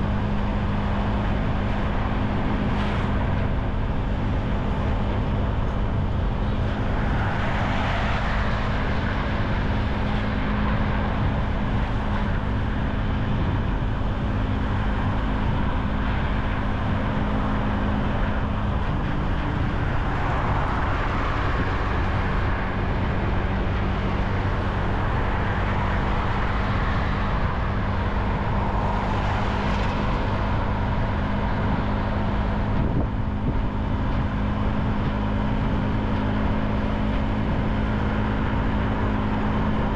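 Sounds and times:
road and traffic noise: 0.0 - 39.9.

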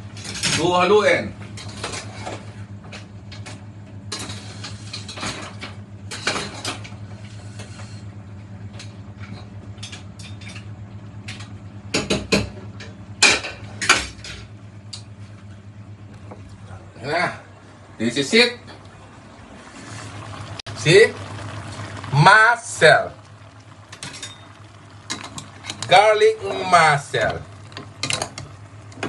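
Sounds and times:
low hum: 12.7 - 29.0.

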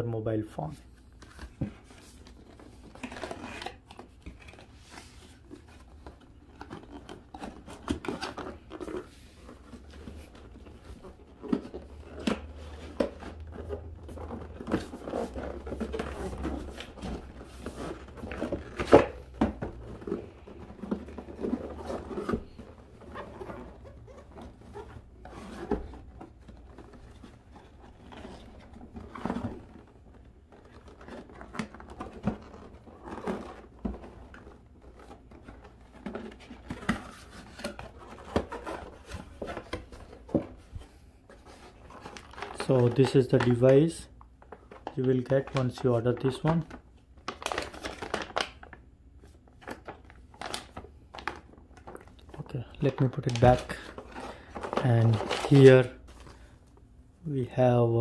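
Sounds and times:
cardboard scraping and rustling: 1.2 - 43.8, 52.8 - 56.5.

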